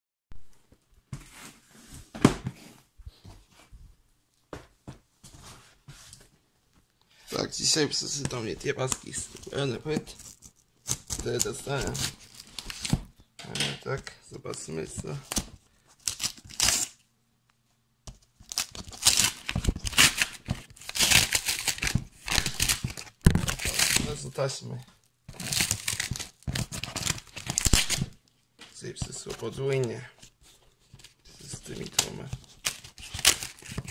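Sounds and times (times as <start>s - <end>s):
package being torn open: 15.2s - 17.0s, 18.4s - 24.3s, 25.3s - 28.2s, 31.8s - 33.9s.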